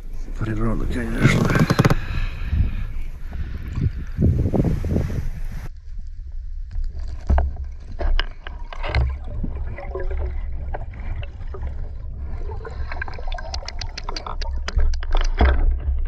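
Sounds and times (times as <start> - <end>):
river water gurgling and sloshing: 6.9 - 16.0
water bubbling: 7.5 - 16.0.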